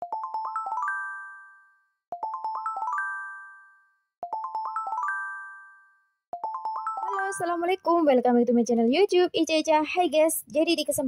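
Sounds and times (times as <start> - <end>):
rising bell-like jingle: 0.3 - 7.6.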